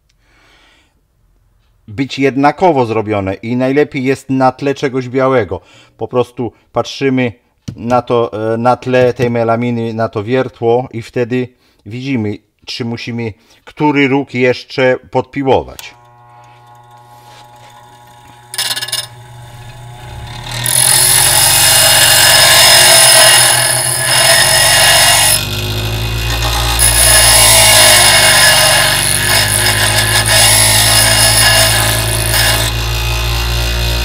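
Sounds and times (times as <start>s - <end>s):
grinder motor hum: 15.8s - 34.0s
bench grinder grinding metal: 16.0s - 34.0s.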